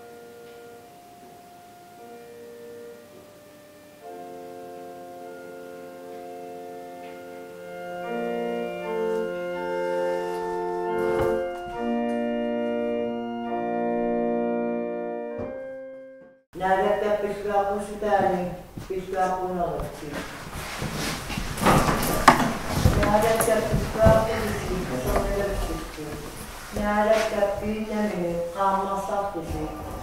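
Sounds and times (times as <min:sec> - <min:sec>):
organ-like keyboard chords: 0:00.0 - 0:18.8.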